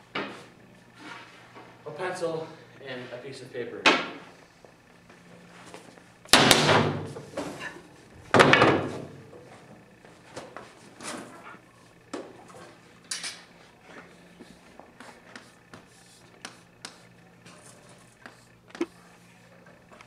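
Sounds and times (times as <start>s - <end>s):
loud sharp bangs: 6.3s - 7.1s.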